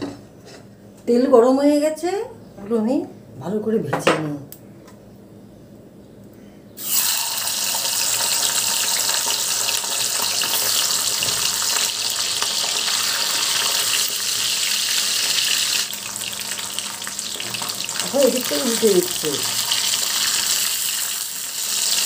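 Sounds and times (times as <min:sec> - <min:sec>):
fish frying in hot oil: 0:06.8 - 0:22.0.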